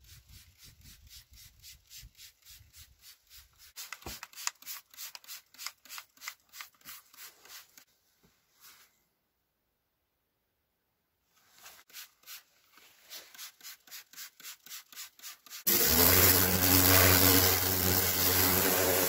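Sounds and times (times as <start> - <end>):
spray bottle hissing: 0.0 - 7.8, 11.9 - 19.0.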